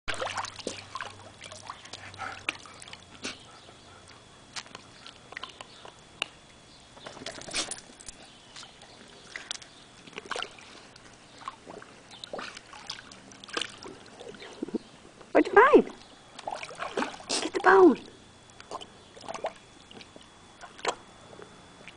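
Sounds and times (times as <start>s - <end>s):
water splashing and sloshing: 0.1s - 3.2s, 7.0s - 14.9s, 15.8s - 21.0s.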